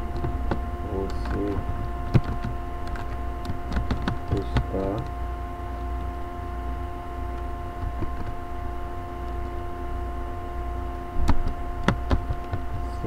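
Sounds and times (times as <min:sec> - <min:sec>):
electrical hum: 0:00.0 - 0:13.0
computer keyboard taps: 0:00.1 - 0:05.1, 0:11.2 - 0:12.8.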